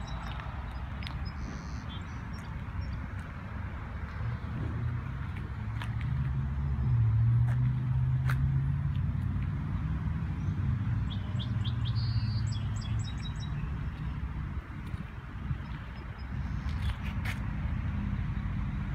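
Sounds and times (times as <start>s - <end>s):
low vehicle hum: 0.0s - 18.9s
small bird chirping: 11.1s - 13.7s.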